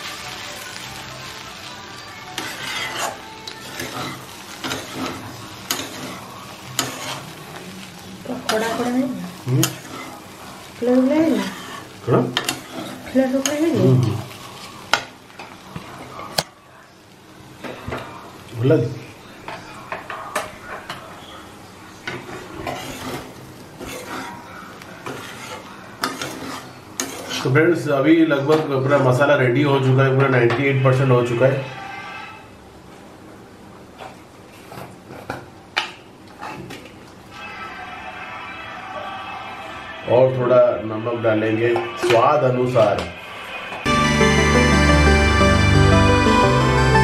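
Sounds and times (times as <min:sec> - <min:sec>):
frying sizzle: 0:00.0 - 0:47.0
metal spatula scraping pan: 0:02.3 - 0:07.4, 0:08.3 - 0:14.6, 0:22.0 - 0:27.6.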